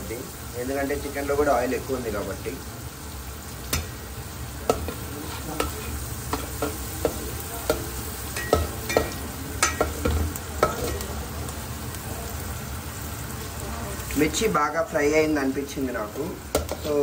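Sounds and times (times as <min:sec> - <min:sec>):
chillies sizzling in oil: 0:00.0 - 0:17.0
utensil clinking against a pan: 0:04.7 - 0:11.1.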